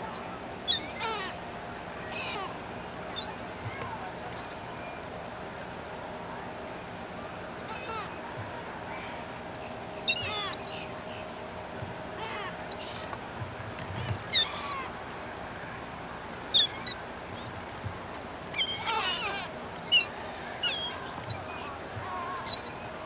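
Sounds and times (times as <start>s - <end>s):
gulls squawking: 0.0s - 4.9s, 6.7s - 9.1s, 10.0s - 11.2s, 12.1s - 13.2s, 13.8s - 15.0s, 16.5s - 17.5s, 18.4s - 23.0s.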